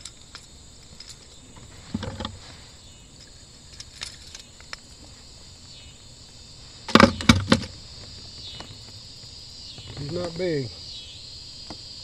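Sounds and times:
sharp knocks and rattles: 0.0s - 2.4s, 6.9s - 9.0s
insects buzzing: 0.0s - 12.0s.

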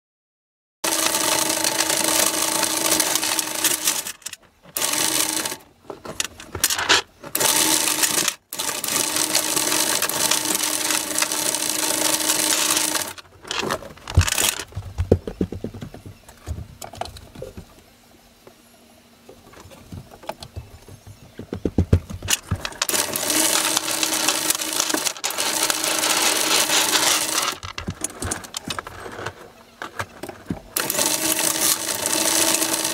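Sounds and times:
anchor chain rattling: 22.3s - 29.4s.

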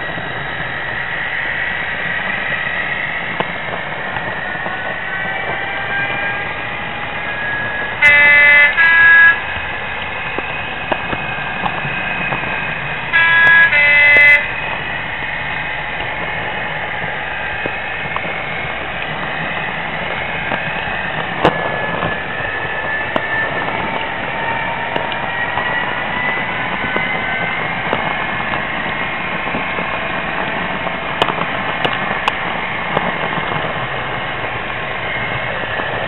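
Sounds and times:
model diesel engine sound: 0.0s - 36.0s
two-tone horn: 7.3s - 9.6s, 13.1s - 14.8s.

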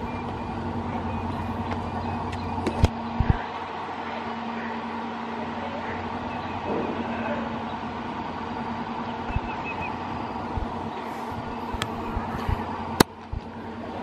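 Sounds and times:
funicular train mechanical hum: 0.0s - 14.0s
low thumps: 9.2s - 9.6s, 10.5s - 13.5s.

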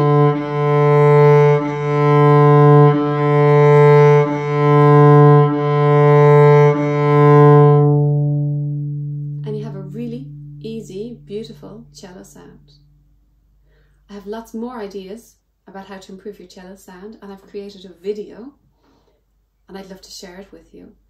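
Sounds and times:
cello bowed low note: 0.0s - 13.2s.

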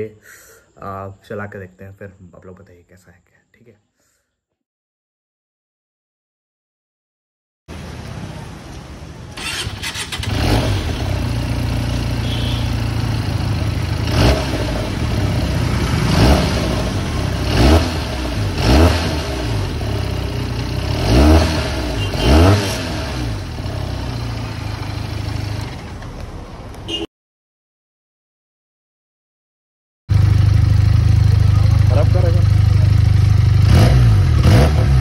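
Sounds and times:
motorcycle engine idling and revving: 7.7s - 27.1s, 30.1s - 35.0s.

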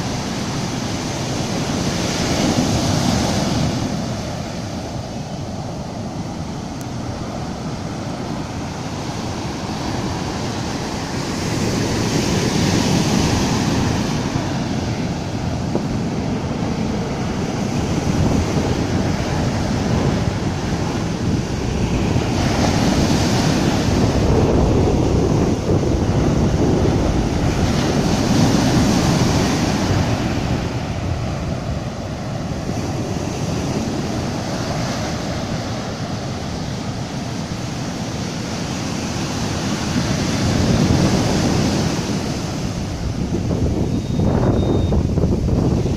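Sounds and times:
surf breaking on sandy beach: 0.0s - 45.9s.

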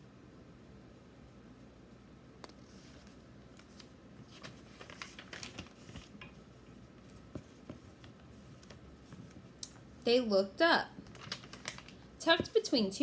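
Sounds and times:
book pages turning: 2.4s - 6.4s, 7.0s - 9.5s, 11.0s - 12.6s.

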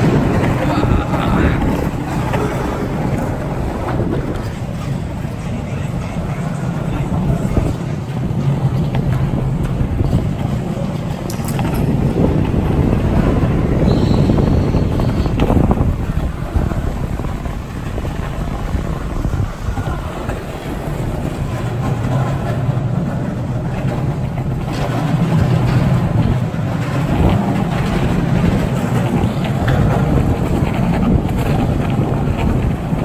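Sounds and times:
skateboard wheels rolling on concrete: 0.0s - 33.0s
wind buffeting microphone: 0.0s - 33.0s.

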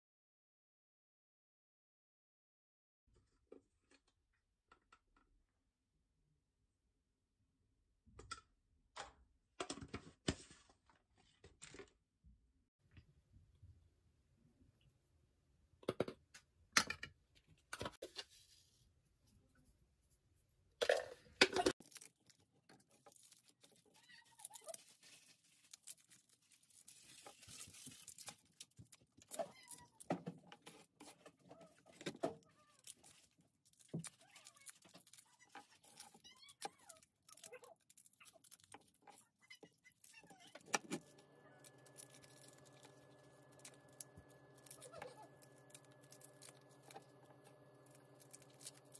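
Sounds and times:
garlic skins crackling and tearing: 21.8s - 30.0s, 32.7s - 48.9s.

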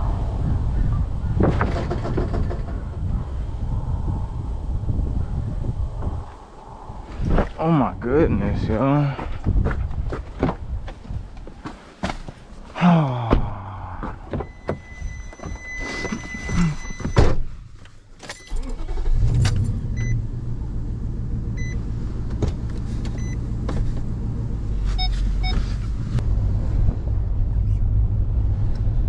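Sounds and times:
dashboard warning chime: 14.3s - 17.2s.

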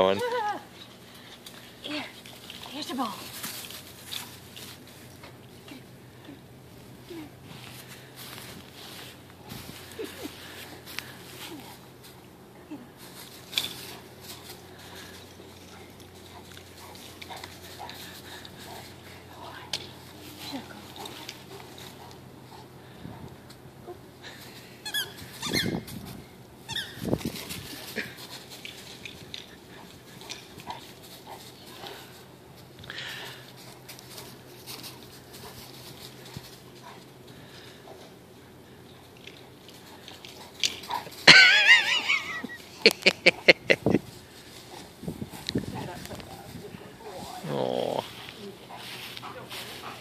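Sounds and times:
low steady hum: 0.0s - 50.0s
squeaky ball squeaks: 24.8s - 25.9s
dog playing with squeaky ball: 24.8s - 26.0s, 26.6s - 27.6s
light clicks and rustles: 38.8s - 41.3s.

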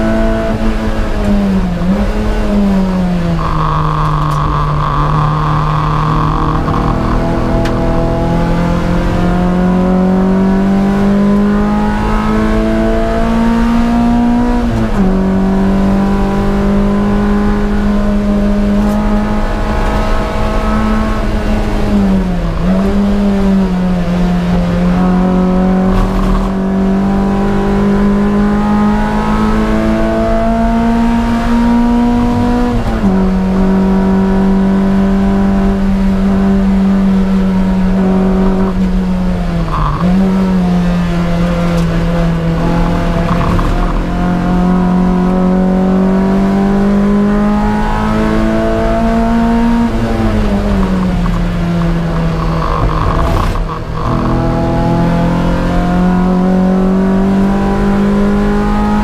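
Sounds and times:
race car engine at high revs: 0.0s - 59.0s.

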